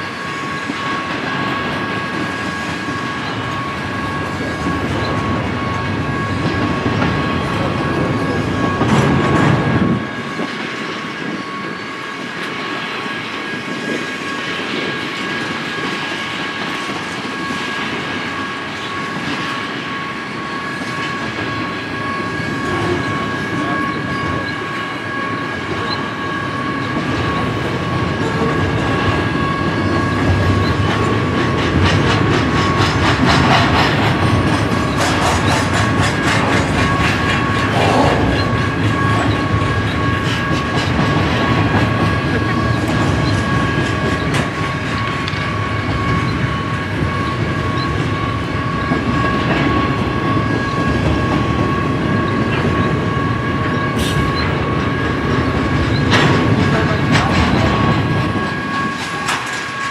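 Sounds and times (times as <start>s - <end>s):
train rumble: 0.0s - 59.9s
train wheels clicking over rail joints: 26.8s - 48.2s, 53.7s - 59.9s.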